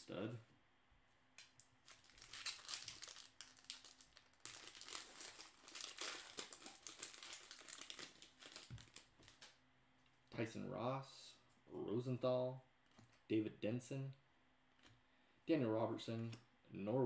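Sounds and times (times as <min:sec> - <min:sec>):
foil wrapper crinkling: 0:01.8 - 0:09.6.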